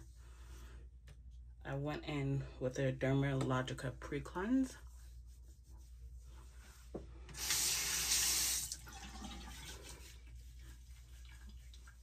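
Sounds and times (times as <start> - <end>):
sink tap running: 7.3 - 9.8.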